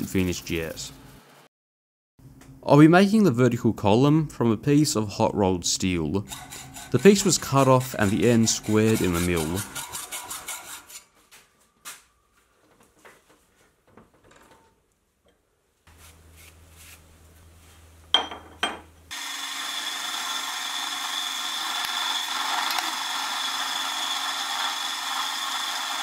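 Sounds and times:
milling machine cutting steel: 19.1s - 26.0s.

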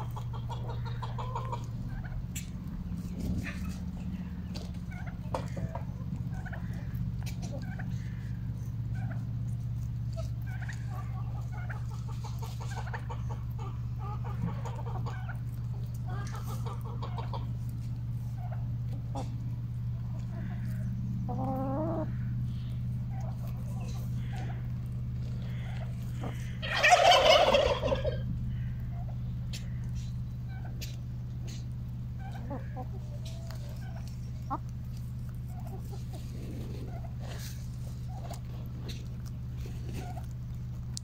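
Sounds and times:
hens clucking: 0.0s - 41.0s
low hum: 0.0s - 41.0s
hen drawn-out call: 20.0s - 30.8s, 31.4s - 34.8s.

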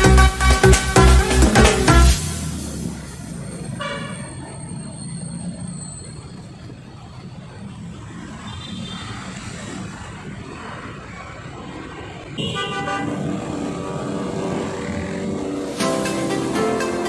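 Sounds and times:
engines idling in traffic: 0.0s - 17.0s
vehicle horn: 3.8s - 4.4s, 12.4s - 13.3s.

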